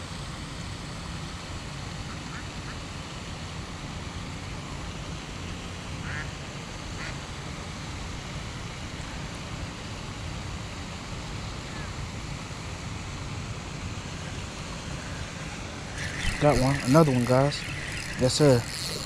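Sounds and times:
waterfowl calls: 0:06.0 - 0:06.3, 0:15.9 - 0:19.0.

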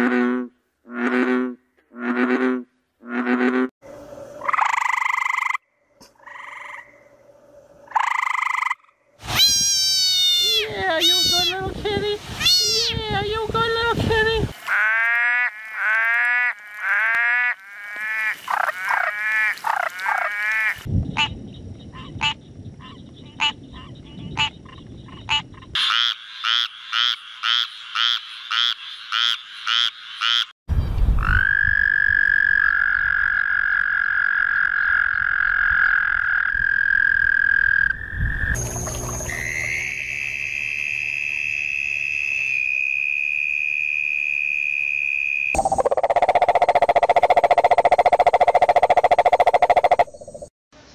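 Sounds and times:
toad trilling: 0:04.4 - 0:05.6, 0:07.9 - 0:11.6, 0:45.5 - 0:50.5
clicking frog calls: 0:04.4 - 0:07.1, 0:07.9 - 0:09.0, 0:14.6 - 0:30.5, 0:42.5 - 0:50.5
tree frog calling: 0:04.4 - 0:07.2, 0:07.9 - 0:11.6, 0:14.6 - 0:30.5, 0:31.2 - 0:50.5.

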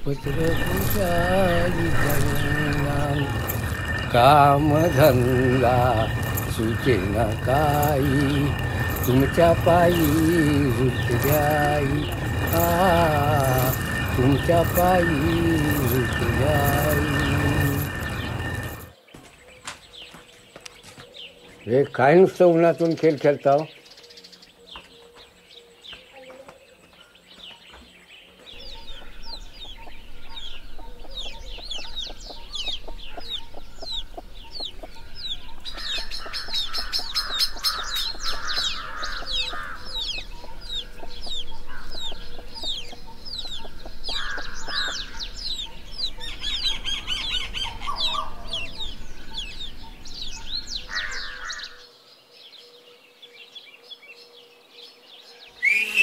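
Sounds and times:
high-pitched chirps: 0:00.0 - 0:18.9.

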